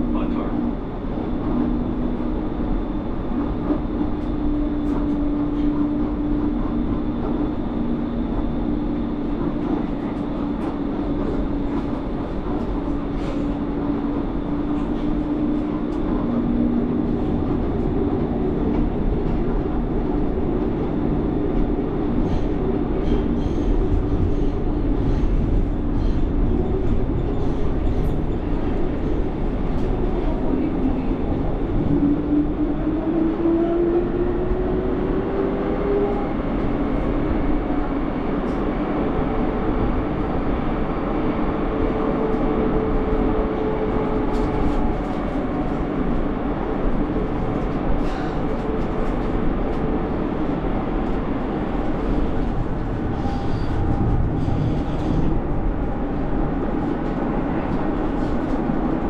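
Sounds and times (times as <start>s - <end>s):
tram motor hum: 0.0s - 59.0s
tram wheels rumbling on rail: 0.0s - 59.0s.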